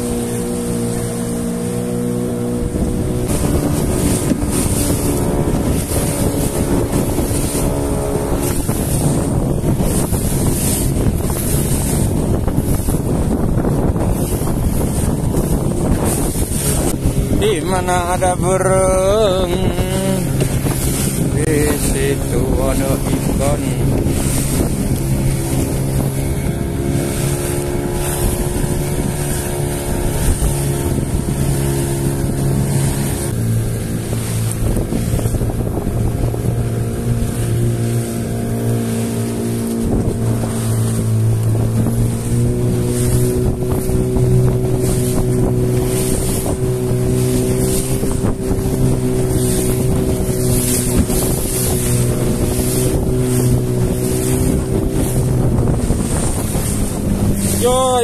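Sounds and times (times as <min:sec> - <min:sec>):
boat engine running: 0:00.0 - 0:58.0
water hissing past hull: 0:00.0 - 0:58.0
wind on microphone: 0:00.0 - 0:58.0.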